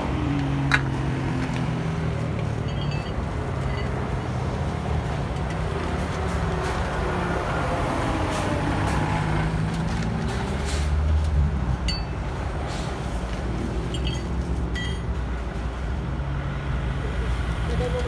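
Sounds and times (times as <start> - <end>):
heavy traffic rumble: 0.0 - 18.0
metallic clinks: 2.6 - 4.3, 11.9 - 12.2, 13.9 - 15.1.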